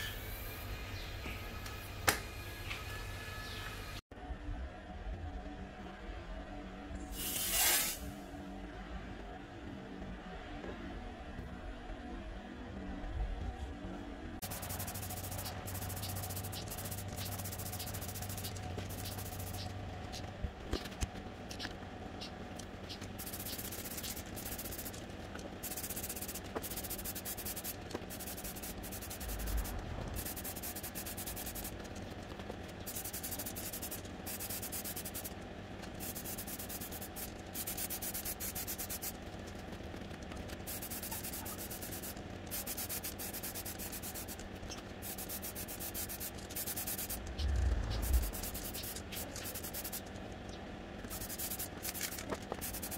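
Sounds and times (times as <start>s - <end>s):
spray paint can hissing: 7.2s - 8.2s, 14.4s - 31.8s, 32.8s - 35.4s, 36.0s - 39.2s, 40.5s - 50.1s, 51.0s - 52.9s.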